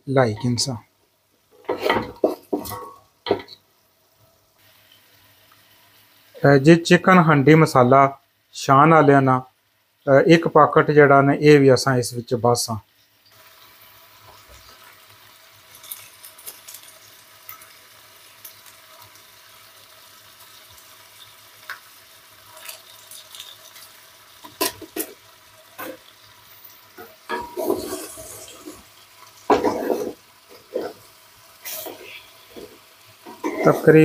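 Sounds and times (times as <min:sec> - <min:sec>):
chicken sizzling in butter: 0:00.0 - 0:34.0
spoon knocking and scraping pot: 0:01.6 - 0:03.6, 0:27.0 - 0:28.8, 0:29.5 - 0:31.0, 0:31.8 - 0:33.8.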